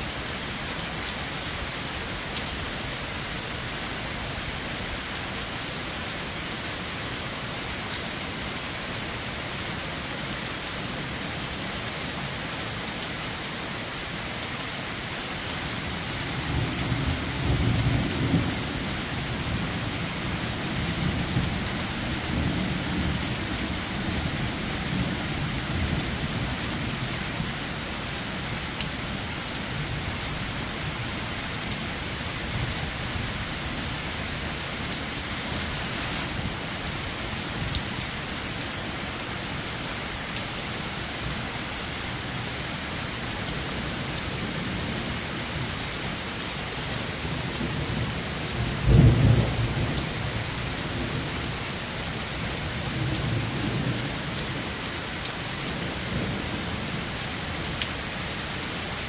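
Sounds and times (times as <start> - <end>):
heavy rain: 0.0 - 59.0.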